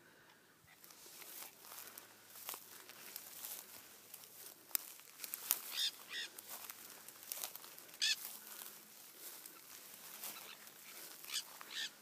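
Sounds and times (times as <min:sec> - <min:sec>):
parrots squawking: 0:05.7 - 0:06.4, 0:08.0 - 0:08.2, 0:10.3 - 0:12.0.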